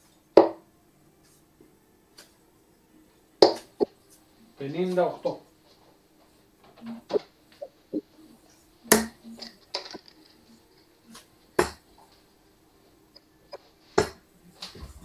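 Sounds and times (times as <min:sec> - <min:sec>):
darts thudding into dartboard: 0:00.4 - 0:00.6, 0:03.4 - 0:03.8, 0:08.9 - 0:10.0, 0:11.1 - 0:11.8, 0:14.0 - 0:15.0.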